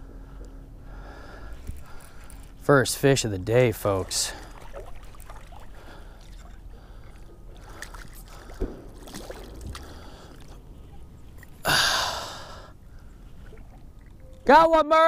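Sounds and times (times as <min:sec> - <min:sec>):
person sighing loudly: 0:11.6 - 0:12.8.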